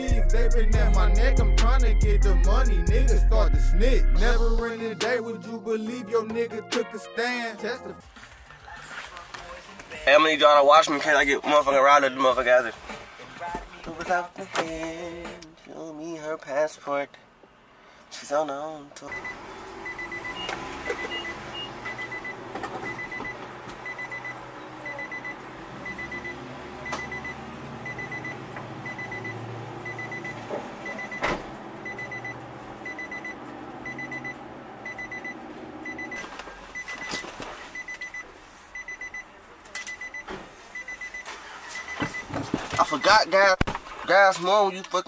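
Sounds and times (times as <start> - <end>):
car warning chime beeps: 19.0 - 43.4.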